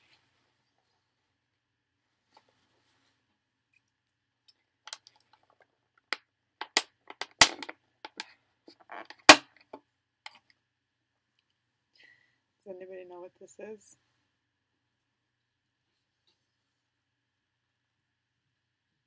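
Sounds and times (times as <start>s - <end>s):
plastic container clicks and crackles: 4.9s - 9.5s.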